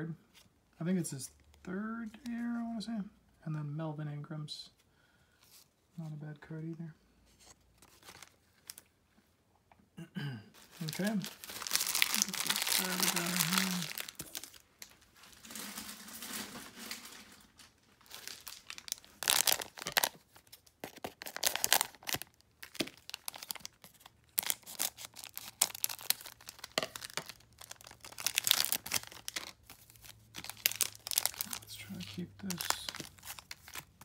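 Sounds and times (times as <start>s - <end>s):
cards rustling: 7.3s - 8.9s, 10.6s - 34.0s
card pack wrapper tearing: 10.6s - 34.0s.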